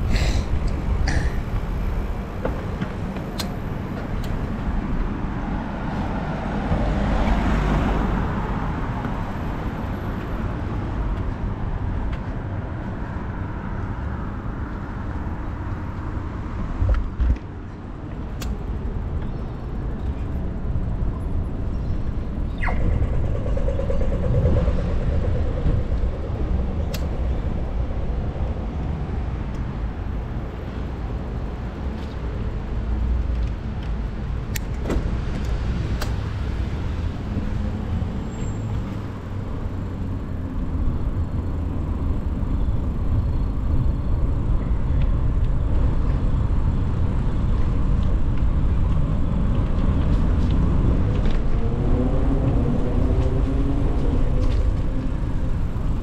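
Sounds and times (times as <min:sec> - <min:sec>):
road noise: 0:00.0 - 0:56.0
wind buffeting microphone: 0:19.7 - 0:30.5.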